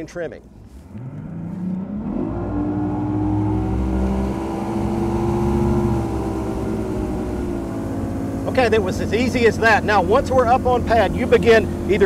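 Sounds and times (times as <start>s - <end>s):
outboard engine revving: 0.8s - 12.0s.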